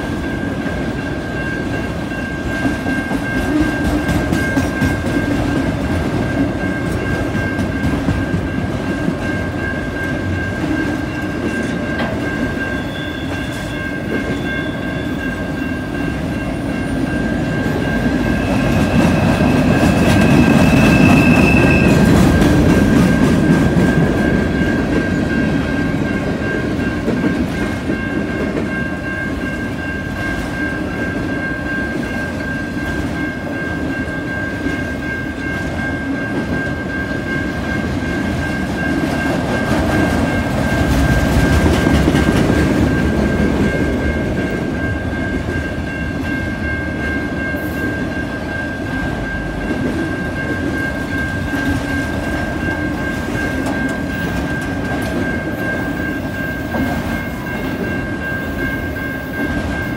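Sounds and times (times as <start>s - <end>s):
train wheel squeal: 0.0s - 37.8s
steady high tone: 0.0s - 59.9s
train wheels clacking over rail joints: 38.6s - 44.6s.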